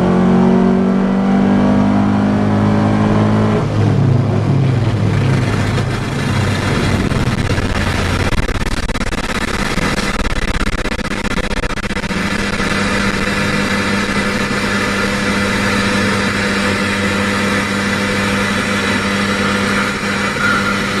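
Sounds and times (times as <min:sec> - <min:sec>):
car engine drone: 0:00.0 - 0:21.0
tyre road rumble: 0:00.0 - 0:21.0.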